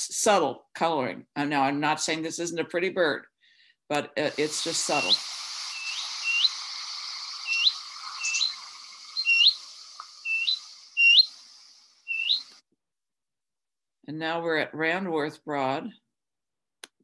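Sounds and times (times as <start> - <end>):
background hiss: 4.2 - 12.6
warbler calling: 4.3 - 12.6.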